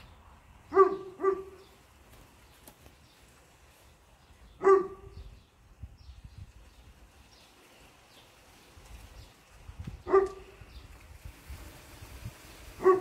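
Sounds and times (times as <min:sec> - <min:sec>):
dog barking: 0:00.7 - 0:01.6, 0:04.6 - 0:05.2, 0:10.0 - 0:10.5, 0:12.8 - 0:13.0.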